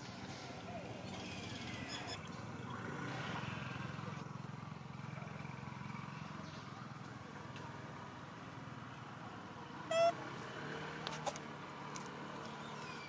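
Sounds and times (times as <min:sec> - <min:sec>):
macaque squeaking: 0:09.9 - 0:10.2.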